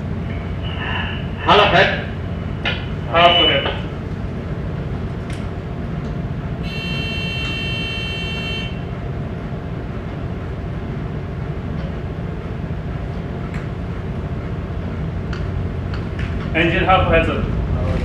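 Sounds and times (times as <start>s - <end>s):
ship engine rumbling: 0.0s - 18.0s
high electronic tone: 6.6s - 8.8s.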